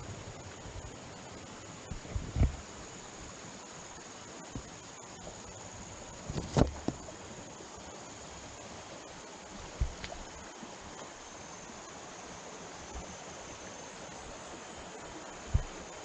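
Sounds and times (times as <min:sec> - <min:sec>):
high insect whine: 0:00.0 - 0:16.0
stream water flowing: 0:00.0 - 0:16.0
low thump: 0:01.9 - 0:02.6.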